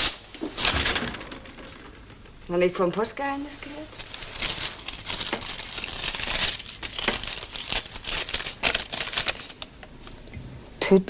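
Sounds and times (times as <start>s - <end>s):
paper crinkling and rustling: 3.6s - 9.7s.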